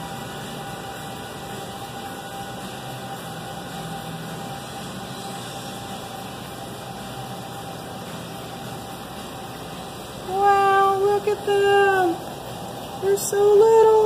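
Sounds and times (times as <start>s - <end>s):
aquarium equipment hum and hiss: 0.0s - 14.0s.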